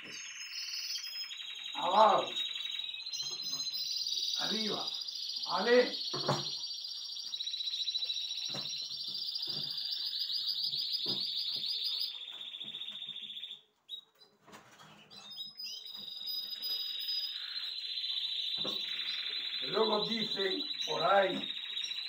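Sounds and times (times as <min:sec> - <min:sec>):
canaries singing trills: 0:00.0 - 0:22.0.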